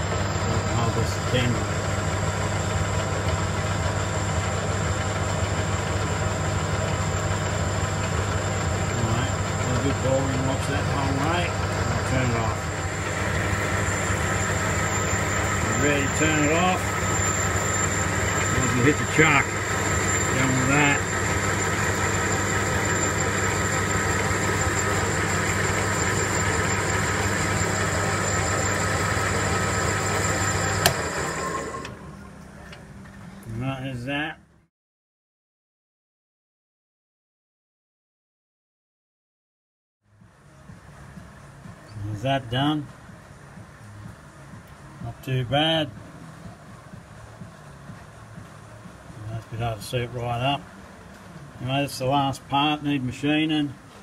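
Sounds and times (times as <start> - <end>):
lathe tool cutting metal: 0.0 - 32.0
metal lathe humming: 0.0 - 32.1.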